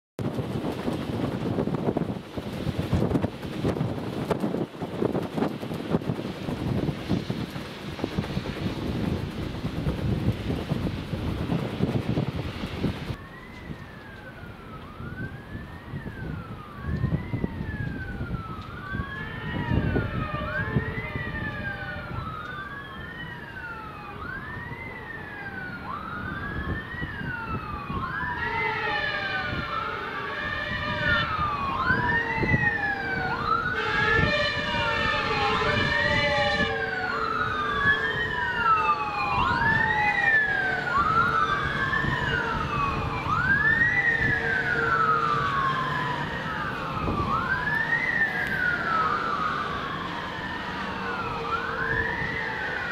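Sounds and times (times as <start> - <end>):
traffic rumble: 0.2 - 52.9
wailing sirens: 0.2 - 52.9
horn blasts: 33.7 - 37.1.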